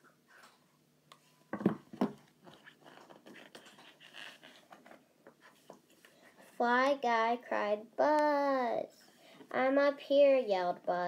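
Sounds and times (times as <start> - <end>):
knocks on a book: 1.6 - 2.2
paper rustling and crackling: 2.4 - 6.2.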